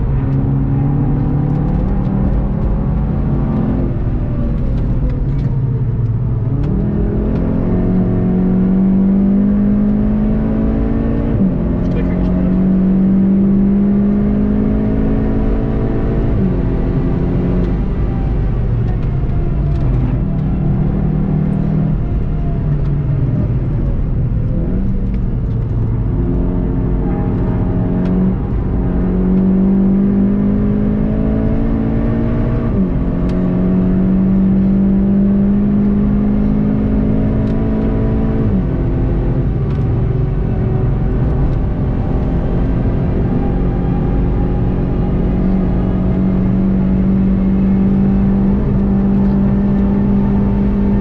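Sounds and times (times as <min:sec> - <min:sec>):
car engine running hard: 0:00.0 - 0:51.0
road and wind noise: 0:00.0 - 0:51.0.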